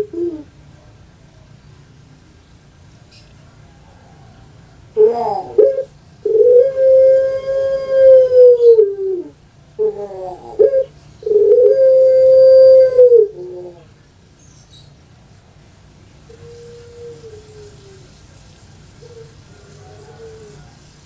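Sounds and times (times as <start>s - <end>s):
dove cooing: 0.0s - 0.6s, 3.9s - 14.0s, 16.2s - 21.0s.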